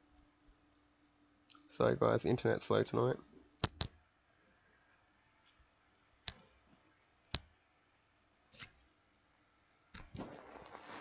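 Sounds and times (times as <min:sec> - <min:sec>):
sharp clicks: 0:03.6 - 0:04.0, 0:08.5 - 0:08.8.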